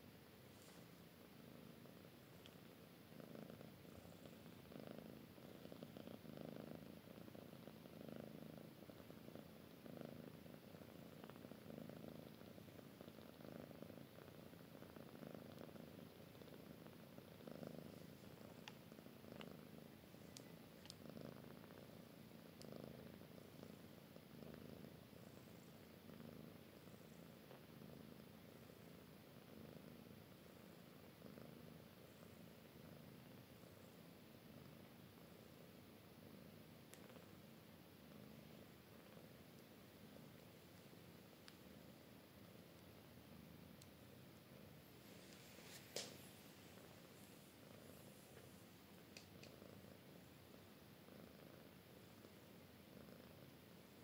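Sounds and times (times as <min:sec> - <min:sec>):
cat purring: 0:00.0 - 0:54.0
faint clicks: 0:02.3 - 0:02.6, 0:18.3 - 0:19.6, 0:20.2 - 0:21.1, 0:36.9 - 0:37.3, 0:40.7 - 0:41.7, 0:43.7 - 0:44.0, 0:47.7 - 0:49.8.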